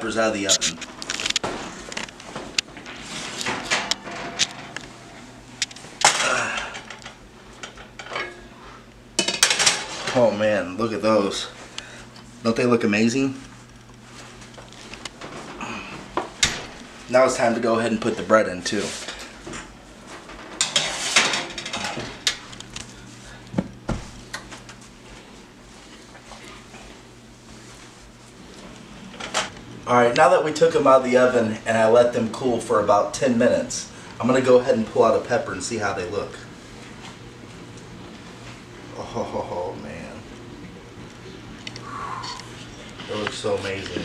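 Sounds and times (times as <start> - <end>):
dishes and cookware clinking: 7.6 - 8.5.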